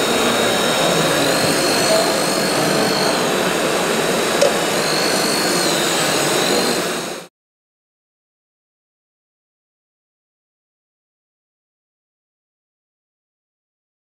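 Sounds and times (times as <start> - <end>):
busy hall noise: 0.0 - 7.3
hydraulic pump whining: 0.0 - 7.3.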